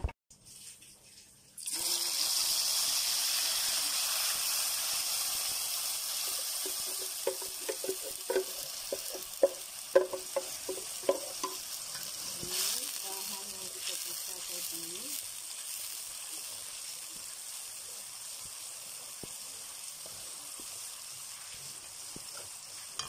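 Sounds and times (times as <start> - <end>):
paste sizzling in hot oil: 1.6 - 23.0
spatula scraping wok: 5.0 - 16.2.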